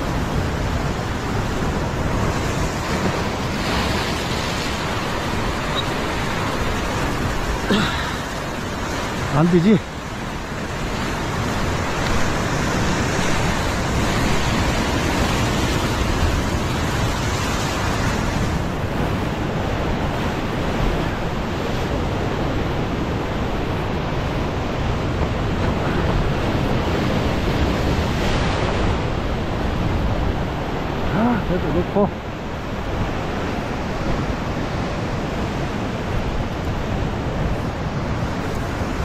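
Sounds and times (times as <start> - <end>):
ocean surf breaking on boulders: 0.0 - 39.0
wind on microphone: 10.0 - 39.0.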